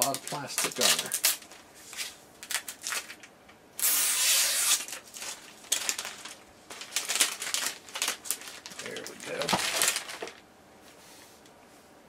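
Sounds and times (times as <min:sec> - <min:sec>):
plastic tearing rip: 0:00.0 - 0:01.5, 0:03.8 - 0:10.4
plastic wrapping crinkling: 0:00.0 - 0:10.4.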